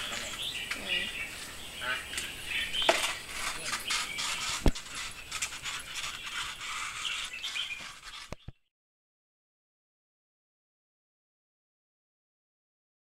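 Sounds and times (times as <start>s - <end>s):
rubber tyre scraping on concrete: 0.0s - 8.6s.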